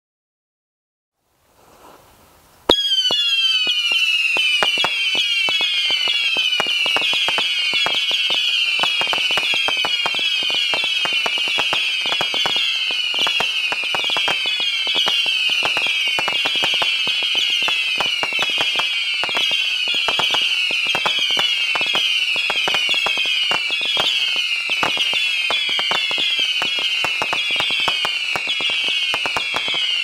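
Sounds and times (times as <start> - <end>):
faint hiss: 1.2 - 2.8
crackle of sharp pops: 2.7 - 30.0
whistling fireworks launching: 2.7 - 30.0.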